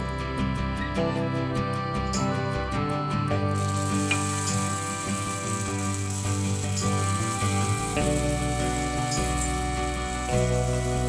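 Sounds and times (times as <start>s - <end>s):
background music: 0.0s - 11.0s
sandwich sizzling in a pan: 3.5s - 11.0s.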